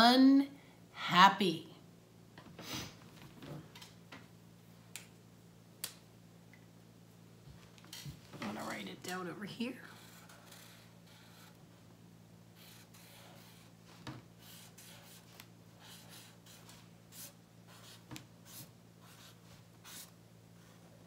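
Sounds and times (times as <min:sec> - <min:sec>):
marker writing on paper: 0:09.9 - 0:11.6, 0:12.6 - 0:13.7, 0:14.4 - 0:20.1.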